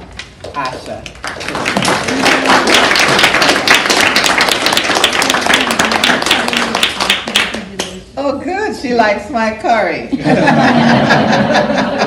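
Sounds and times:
audience applauding: 0.4 - 7.7.

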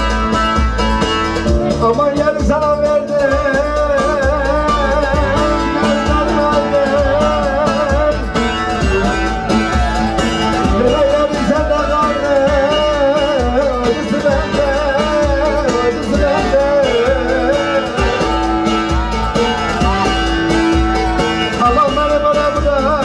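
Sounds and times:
folk dance band playing: 0.0 - 23.0.

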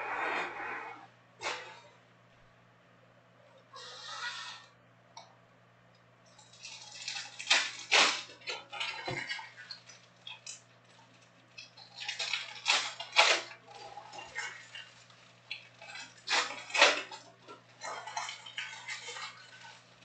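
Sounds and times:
foil packs crinkling: 6.4 - 20.0.

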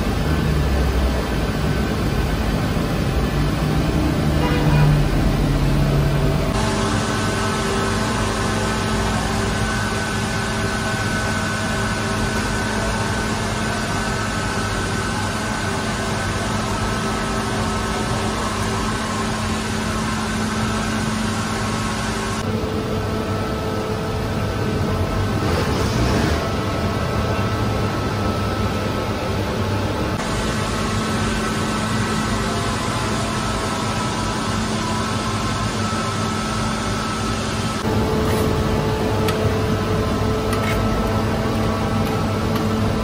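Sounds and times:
dough mixer motor running: 0.0 - 22.4.

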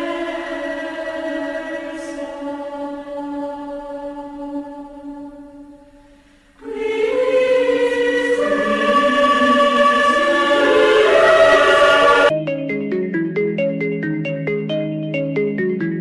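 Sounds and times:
choir-like sustained voices: 0.0 - 12.3
held chord: 6.6 - 16.0.

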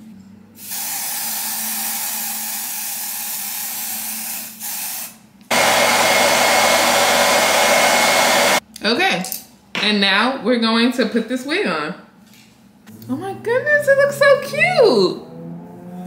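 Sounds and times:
aerosol can spraying: 0.6 - 8.6
hair dryer running with whine: 5.5 - 8.6.

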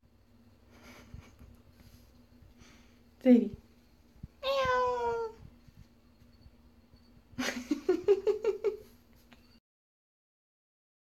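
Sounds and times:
cat meowing: 4.4 - 5.4.

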